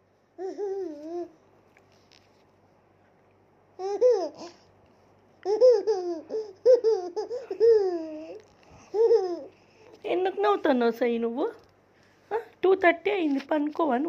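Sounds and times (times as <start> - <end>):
toddler girl giggling: 5.4 - 9.6.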